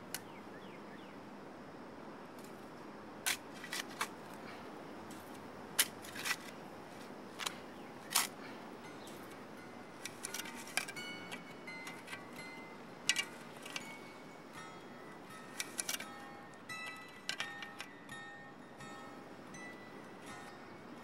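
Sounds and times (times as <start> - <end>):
shovel scraping rocky soil: 3.3 - 4.4, 5.1 - 6.6
faint plucked-string music: 5.0 - 21.0.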